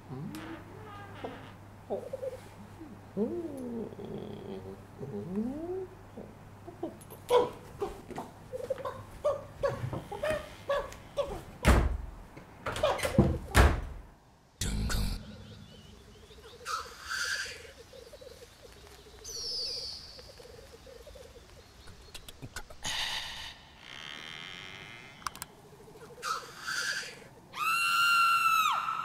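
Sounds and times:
grouse bubbling coo: 0:01.9 - 0:07.0, 0:20.2 - 0:23.0
short hissing calls: 0:21.9 - 0:25.2, 0:26.2 - 0:27.7.

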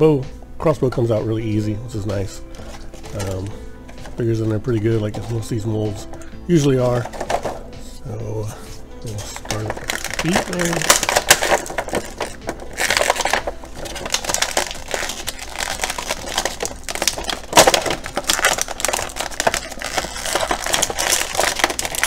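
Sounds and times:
plastic blister tray crinkling: 0:02.5 - 0:04.4, 0:06.8 - 0:07.7, 0:09.0 - 0:22.0.

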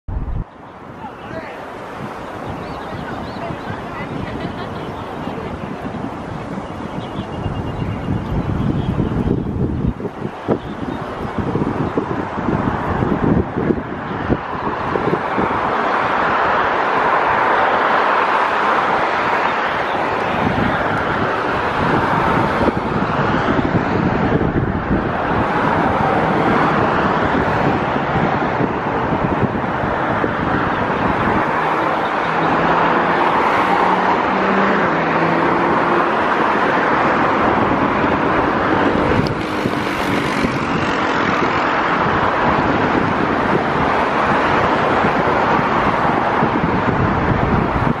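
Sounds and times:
jet engines roaring: 0:13.9 - 0:48.0.

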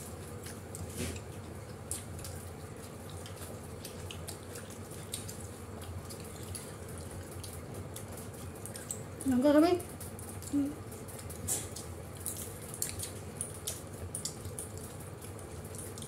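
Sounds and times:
chewing: 0:00.0 - 0:16.0
steady low hum: 0:00.0 - 0:16.0
fingers tearing bread: 0:09.9 - 0:16.0.

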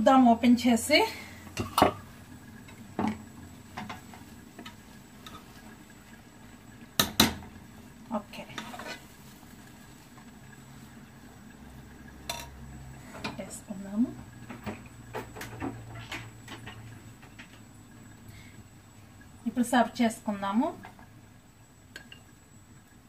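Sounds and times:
metal spoon scraping pot: 0:08.5 - 0:09.2.

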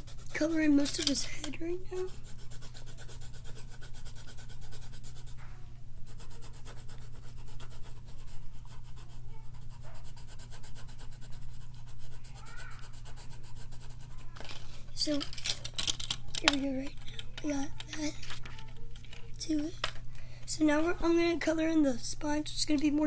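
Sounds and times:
coloring strokes on paper: 0:00.0 - 0:01.2, 0:01.9 - 0:14.3
steady low hum: 0:00.0 - 0:23.0.

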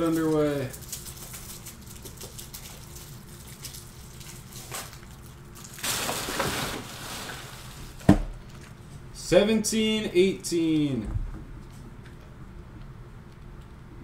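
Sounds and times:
plastic rustle: 0:00.0 - 0:08.9.

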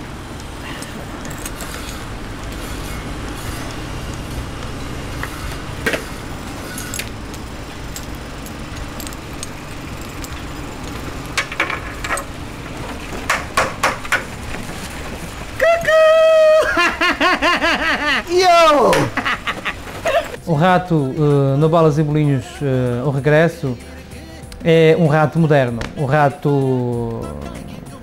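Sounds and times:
low construction rumble: 0:00.0 - 0:28.0
scattered clinks: 0:00.6 - 0:12.7
sharp metallic knocks: 0:13.1 - 0:14.3.

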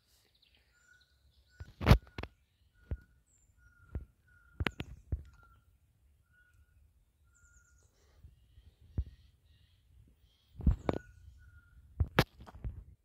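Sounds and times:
bird repeating single note: 0:01.5 - 0:07.8.

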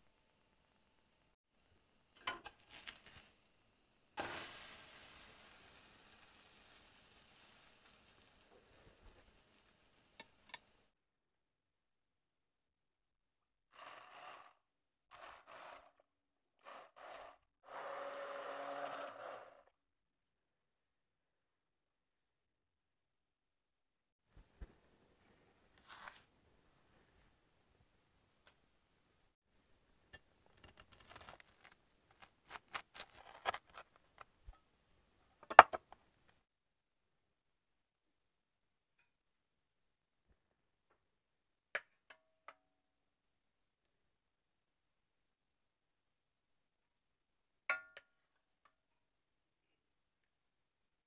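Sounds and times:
immersion blender whirring: 0:13.7 - 0:16.0, 0:16.6 - 0:19.6
knife crunching through toasted bread: 0:30.6 - 0:34.0.

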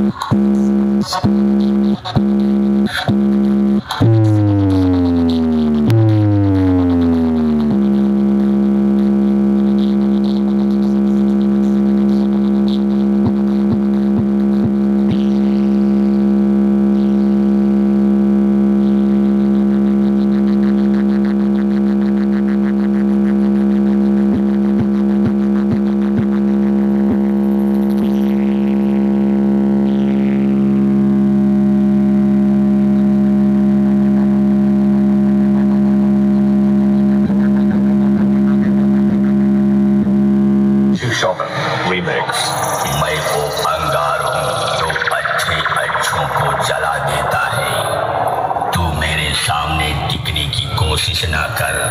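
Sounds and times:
low buzzy synth tone: 0:00.0 - 0:50.4
quick pitch flicks: 0:41.6 - 0:50.1.

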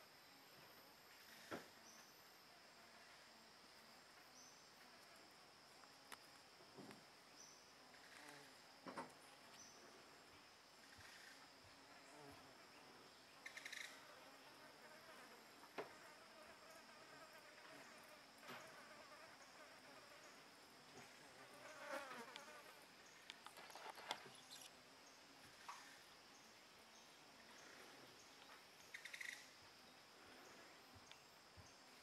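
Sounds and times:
insect droning: 0:00.0 - 0:32.0
soft clicks and rustles: 0:23.2 - 0:24.8.

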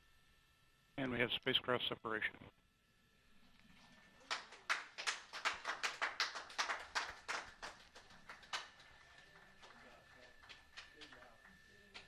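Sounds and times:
small group clapping: 0:03.7 - 0:12.0.

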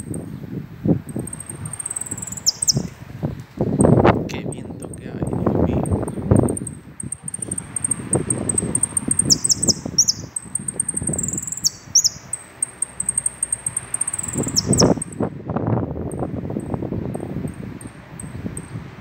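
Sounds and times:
low rumbling noise: 0:00.0 - 0:12.3, 0:13.1 - 0:19.0
finch singing: 0:01.1 - 0:03.0, 0:03.7 - 0:15.2.

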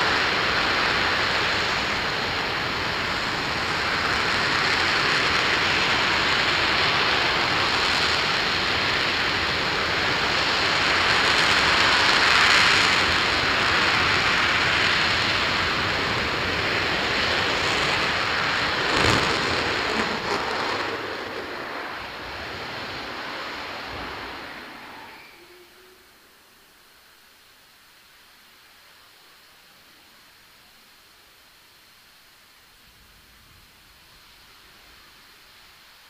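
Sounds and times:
rocket engine firing: 0:02.8 - 0:25.1
sharp crack: 0:10.4 - 0:24.8.

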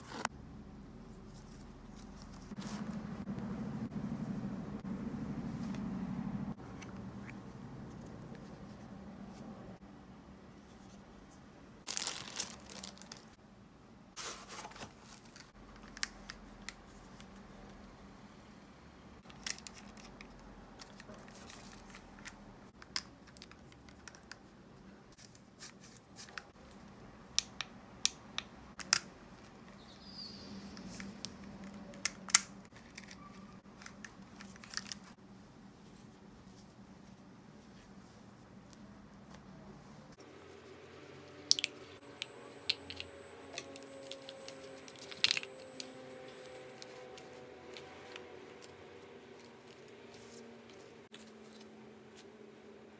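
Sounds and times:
packaging rustling: 0:11.9 - 0:13.4, 0:42.6 - 0:51.6
plastic parts clicking and tapping: 0:19.2 - 0:24.4, 0:27.3 - 0:29.8.

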